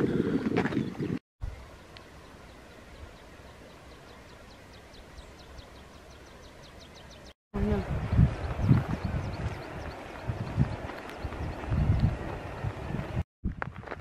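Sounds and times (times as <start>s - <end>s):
wind buffeting microphone: 7.6s - 14.0s.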